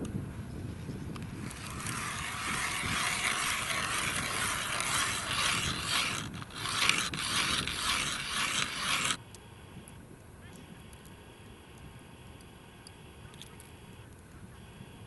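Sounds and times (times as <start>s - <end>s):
ice auger scraping ice: 1.2s - 9.2s.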